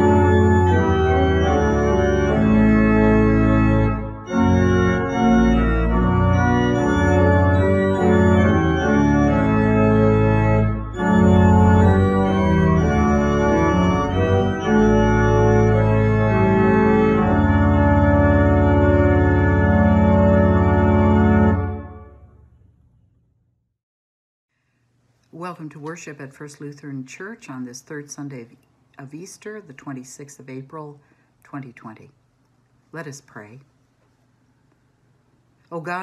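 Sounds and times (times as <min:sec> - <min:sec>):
church organ chords: 0:00.0 - 0:22.5.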